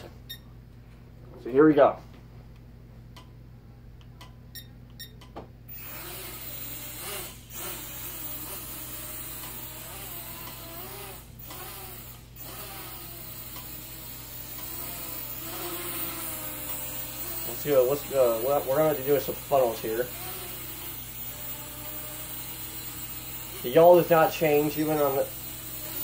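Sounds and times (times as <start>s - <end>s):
quadcopter propellers buzzing: 5.7s - 26.0s.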